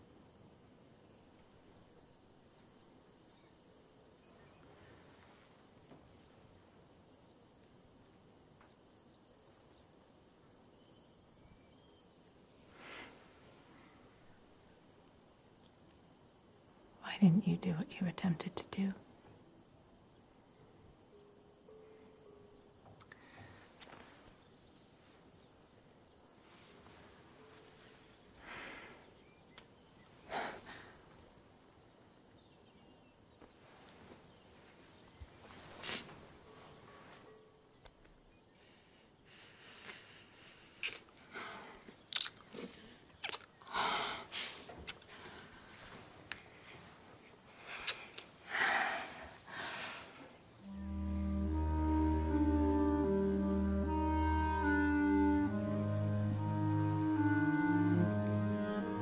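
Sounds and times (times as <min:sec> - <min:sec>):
faint room tone hiss: 0:00.0 - 0:59.0
woman breathing: 0:23.1 - 0:23.8, 0:28.4 - 0:29.2, 0:30.3 - 0:31.2, 0:38.6 - 0:41.9, 0:43.7 - 0:46.8, 0:47.5 - 0:50.4.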